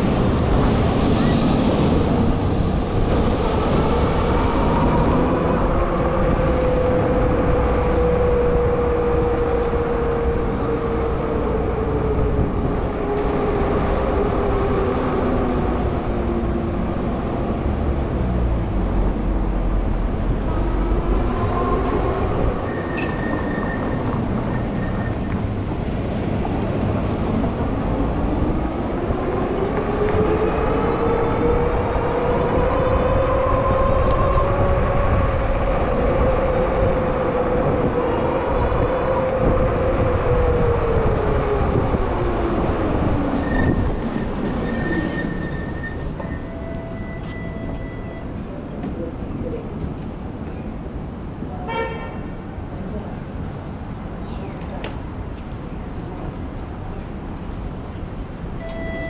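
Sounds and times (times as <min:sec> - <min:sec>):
road noise: 0:00.0 - 0:59.0
rushing wind: 0:00.0 - 0:59.0.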